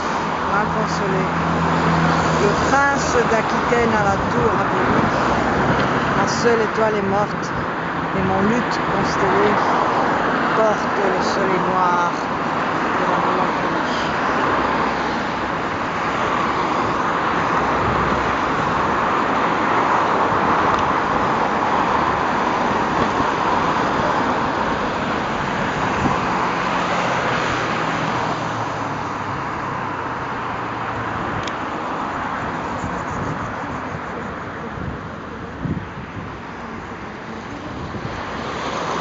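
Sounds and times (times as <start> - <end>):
cars passing on busy street: 0.0 - 39.0.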